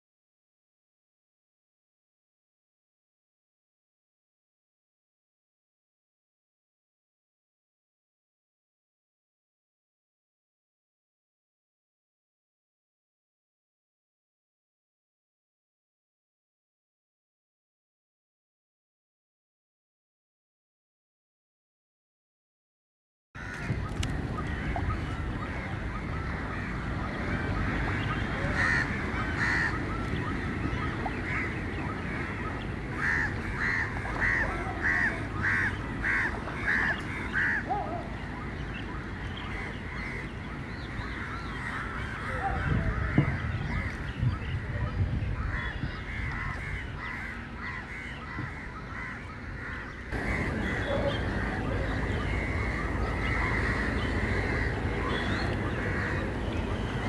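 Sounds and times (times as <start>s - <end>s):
chorus of birds calling: 23.4s - 57.0s
loud evenly spaced bird calls: 23.4s - 57.0s.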